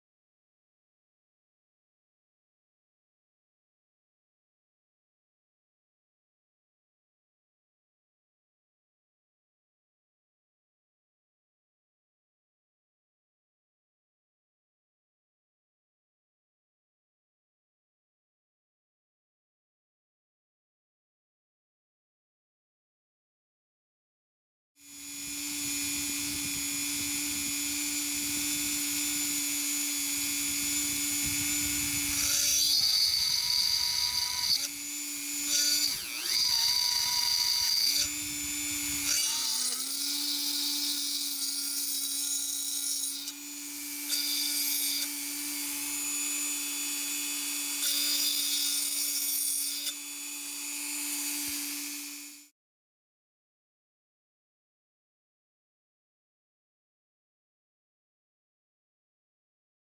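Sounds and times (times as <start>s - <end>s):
drill whining into metal: 24.8s - 52.5s.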